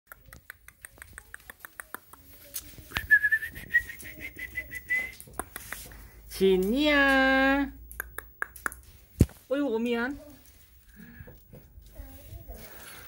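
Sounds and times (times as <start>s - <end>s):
person whistling high note: 3.0s - 5.2s.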